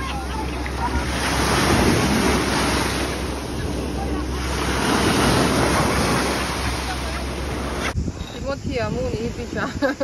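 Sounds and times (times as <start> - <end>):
small waves washing over sand: 0.0 - 8.0
wind buffeting microphone: 0.0 - 10.0.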